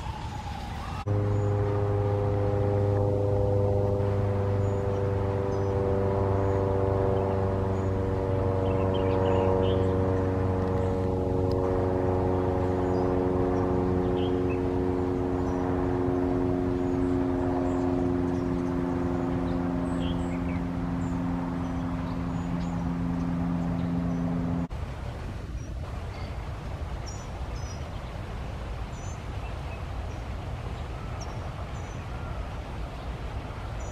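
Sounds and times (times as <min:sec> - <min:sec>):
engine drone: 0:00.0 - 0:25.2.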